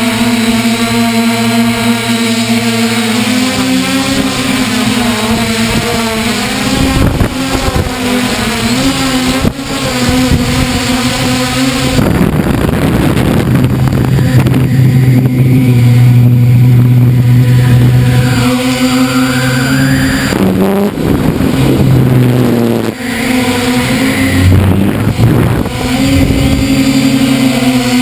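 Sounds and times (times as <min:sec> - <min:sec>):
drone motors whining: 0:00.0 - 0:28.0.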